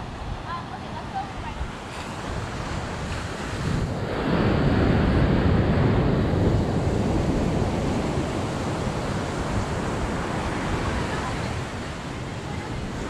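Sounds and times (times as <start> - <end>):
surf breaking on beach: 0.0 - 13.0
wind on microphone: 0.0 - 13.0.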